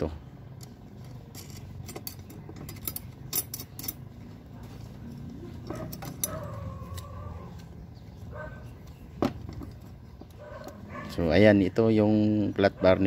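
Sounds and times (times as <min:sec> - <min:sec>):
metal brackets and bolts clinking: 0:00.0 - 0:07.3, 0:08.7 - 0:11.5.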